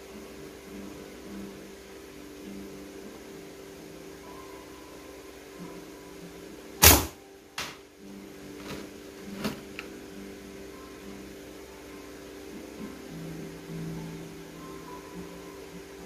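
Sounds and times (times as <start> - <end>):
slingshot crack: 6.8 - 7.8.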